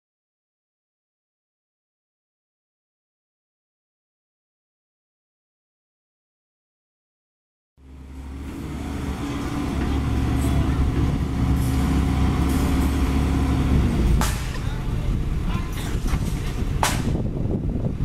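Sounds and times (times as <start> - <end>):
excavator diesel engine: 7.8 - 16.9
constant low hum: 7.8 - 18.0.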